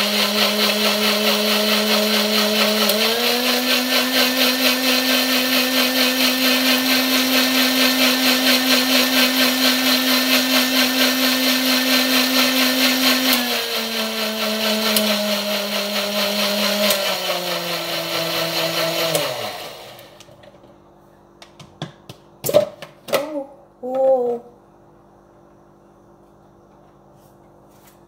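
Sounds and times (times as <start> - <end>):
blender motor whine: 0.0 - 20.3.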